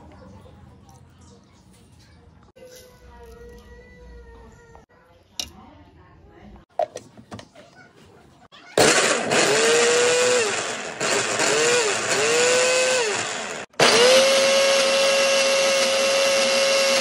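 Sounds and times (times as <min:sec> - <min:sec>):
blender motor whirring: 0:08.8 - 0:17.0.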